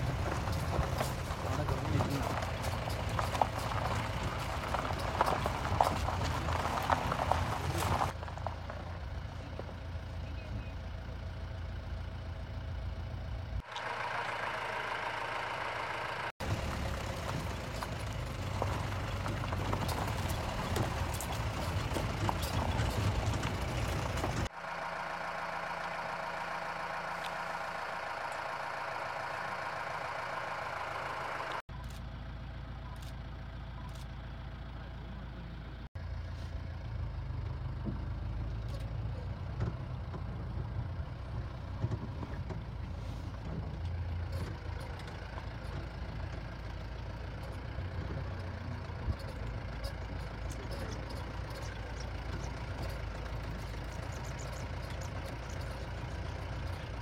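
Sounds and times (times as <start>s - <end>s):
jeep engine running: 0.0s - 57.0s.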